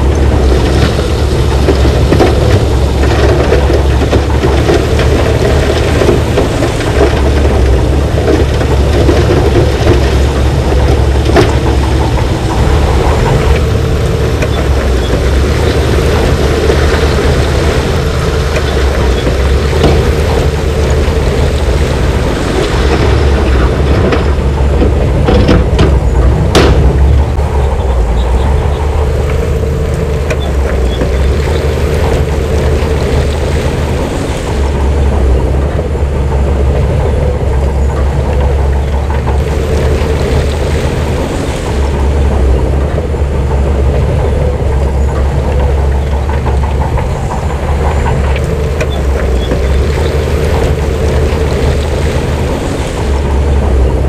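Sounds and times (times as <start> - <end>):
diesel machinery running: 0.0 - 54.0.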